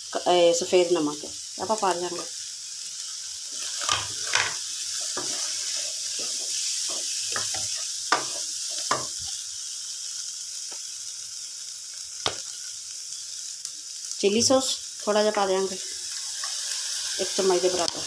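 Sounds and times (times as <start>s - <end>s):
food sizzling in a wok: 0.0s - 18.0s
wooden spatula stirring and scraping: 3.5s - 9.1s.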